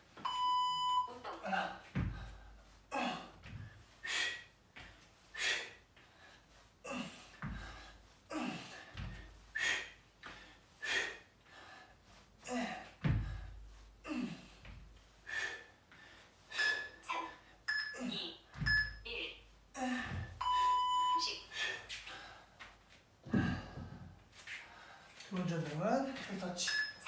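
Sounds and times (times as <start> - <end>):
bare feet thumping on mat: 1.8 - 2.6, 3.4 - 3.8, 7.4 - 7.8, 8.9 - 9.4, 13.0 - 14.0, 14.6 - 15.0, 20.0 - 20.5, 22.6 - 24.6
man breathing hard: 2.0 - 17.6, 21.5 - 25.2.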